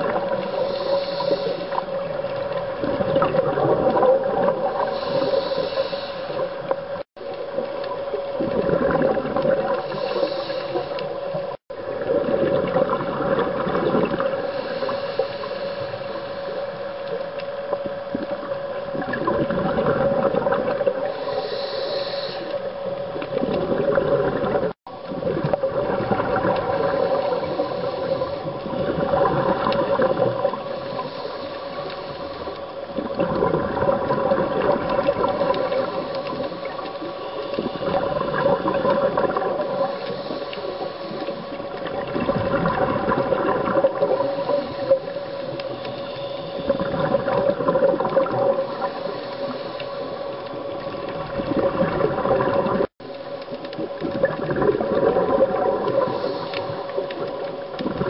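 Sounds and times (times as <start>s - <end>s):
exhaled bubbles rushing underwater: 0.0s - 58.0s
steady hum: 0.0s - 58.0s.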